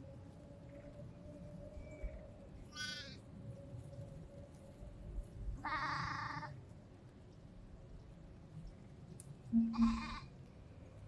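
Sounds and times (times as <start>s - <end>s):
sheep bleating: 9.7s - 10.3s.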